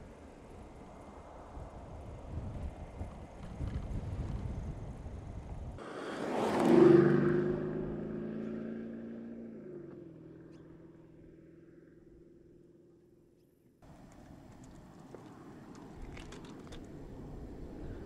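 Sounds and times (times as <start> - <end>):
road rumble: 0.0 - 18.0
car engine driving past: 5.8 - 12.5.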